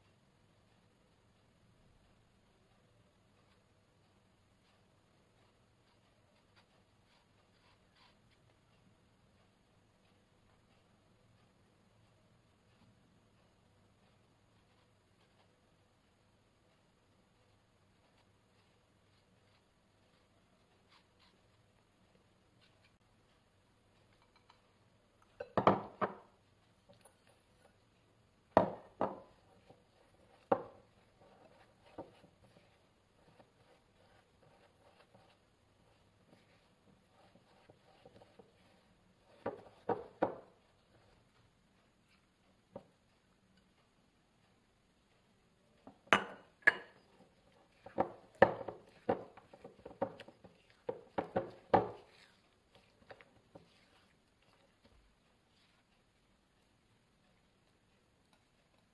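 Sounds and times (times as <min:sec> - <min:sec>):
spatula tapping glass bowl: 0:28.6 - 0:29.2, 0:46.1 - 0:47.1.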